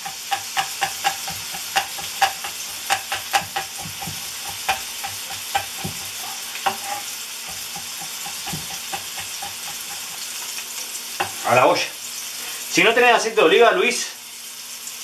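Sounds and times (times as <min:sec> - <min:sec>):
knife chopping on wooden board: 0:00.0 - 0:10.4, 0:11.2 - 0:11.5
peppers sizzling in a pan: 0:00.0 - 0:15.0.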